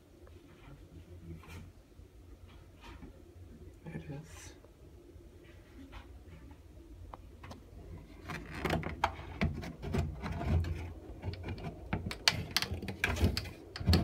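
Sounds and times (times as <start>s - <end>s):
low steady hum: 0.0s - 14.0s
plastic grille clicks and knocks: 8.3s - 14.0s.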